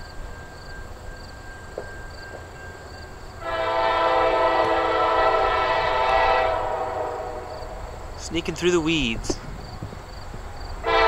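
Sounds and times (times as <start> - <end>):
locomotive air horn blast: 3.4 - 7.9.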